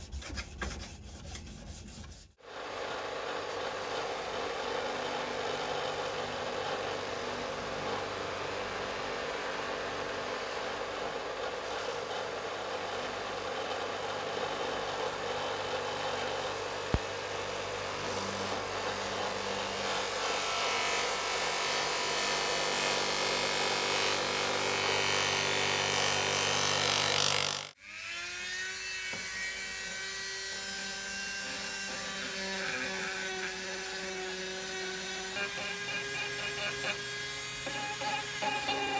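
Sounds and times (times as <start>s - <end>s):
bench grinder running: 2.4s - 27.8s, 29.1s - 38.9s
rotary tool whining: 2.6s - 38.9s
blade hissing on buffing wheel: 35.1s - 38.9s.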